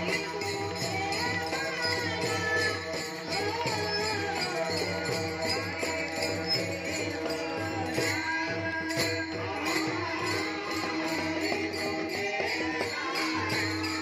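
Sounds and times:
hand cymbals struck: 0:00.0 - 0:14.0
voices singing: 0:00.0 - 0:14.0.

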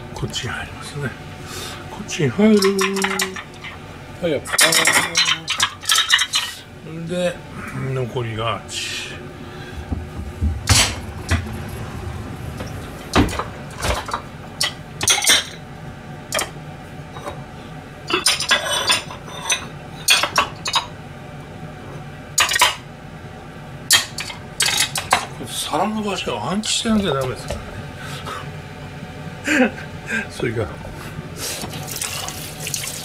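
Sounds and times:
ceramic plates clinking: 0:02.6 - 0:03.8, 0:04.5 - 0:06.6, 0:18.1 - 0:20.9.

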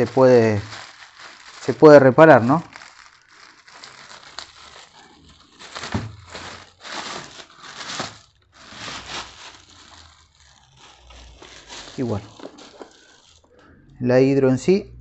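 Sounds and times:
plastic bag crinkling: 0:00.0 - 0:14.1.

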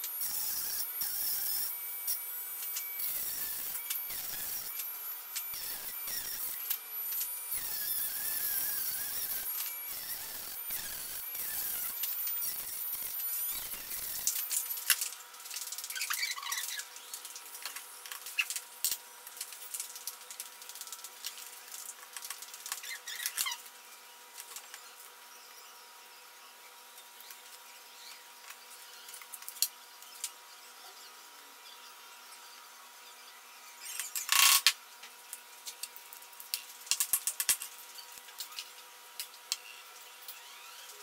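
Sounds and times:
cutting disc grinding metal: 0:00.0 - 0:15.1.

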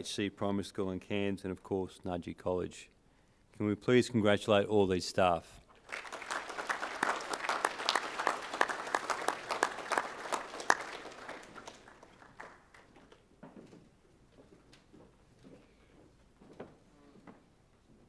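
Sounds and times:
audience applauding: 0:05.8 - 0:13.2.

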